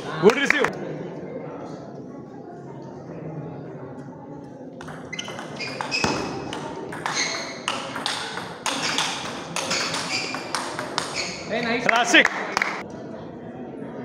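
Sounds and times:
table tennis ball clicking: 4.8s - 11.6s.

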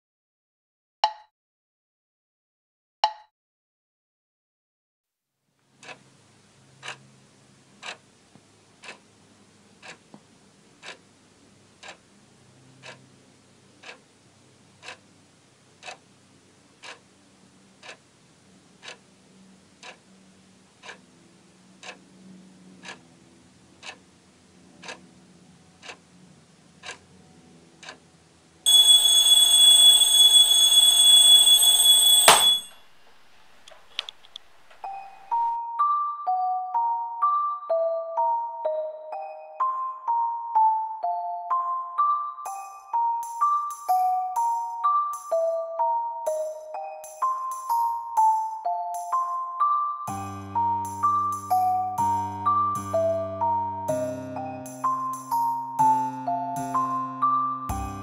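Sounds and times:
clock ticking: 5.8s - 6.0s, 6.8s - 7.1s, 7.8s - 8.0s, 8.8s - 9.0s, 9.8s - 10.0s, 10.8s - 11.1s, 11.8s - 12.0s, 12.7s - 13.0s, 13.8s - 14.0s, 14.8s - 15.0s, 15.8s - 16.0s, 16.8s - 17.1s, 17.8s - 18.0s, 18.8s - 19.0s, 19.8s - 20.0s, 20.8s - 21.0s, 21.8s - 22.0s, 22.8s - 23.0s, 23.8s - 24.0s, 24.8s - 25.1s, 25.8s - 26.0s, 26.8s - 27.0s, 27.8s - 28.0s, 28.7s - 32.7s, 57.7s - 58.0s
alarm clock ringing: 28.7s - 32.8s, 46.3s - 57.0s, 57.7s - 58.0s.

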